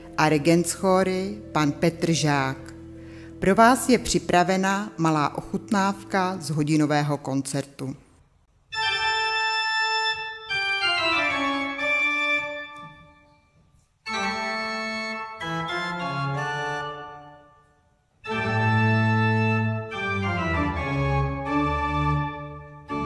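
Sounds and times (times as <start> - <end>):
pipe organ chords: 8.7 - 23.0.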